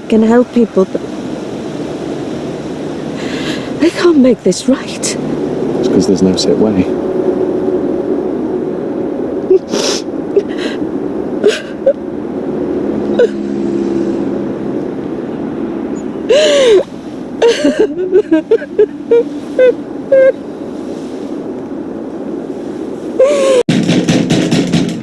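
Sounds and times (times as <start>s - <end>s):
woman sobbing: 9.5s - 10.8s, 11.4s - 12.0s, 13.2s - 13.4s, 16.3s - 20.4s, 23.2s - 23.7s.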